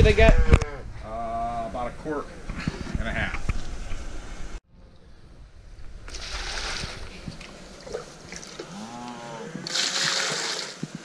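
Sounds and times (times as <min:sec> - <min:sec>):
water pouring into plastic bucket: 0:09.7 - 0:10.8.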